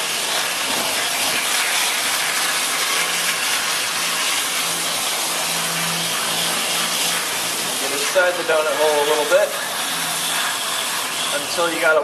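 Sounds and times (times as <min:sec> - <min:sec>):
garden hose spraying water: 0:00.0 - 0:12.0.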